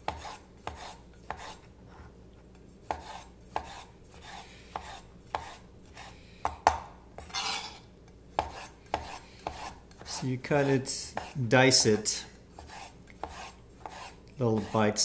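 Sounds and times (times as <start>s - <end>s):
knife scraping board: 0.0s - 2.1s, 2.8s - 6.6s, 7.2s - 15.0s.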